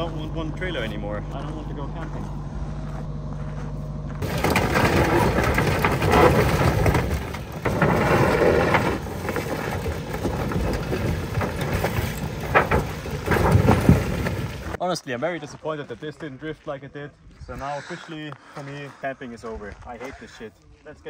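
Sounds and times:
caravan body crunching and scraping: 0.0 - 14.8
diesel engine working: 0.0 - 14.8.

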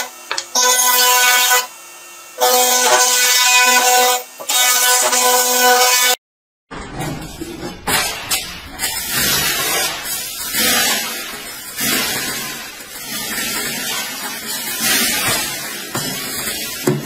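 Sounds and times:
grain mill running: 8.7 - 17.0
grain rushing and rattling: 8.8 - 17.0.

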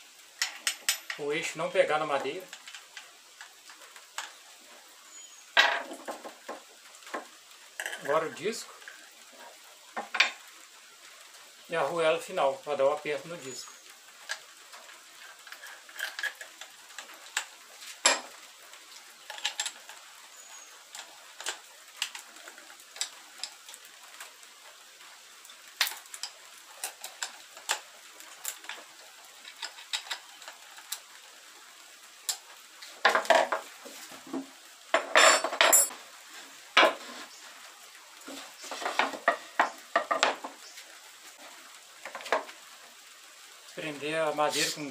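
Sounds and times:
small metallic clicks and clinks: 0.4 - 1.2
grinder clattering on wooden bench: 38.7 - 40.5.

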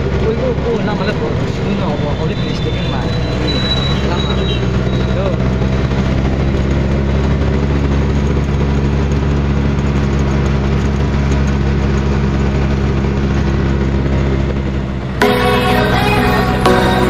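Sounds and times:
auto-rickshaw engine running: 0.0 - 17.0
music: 15.1 - 17.0.

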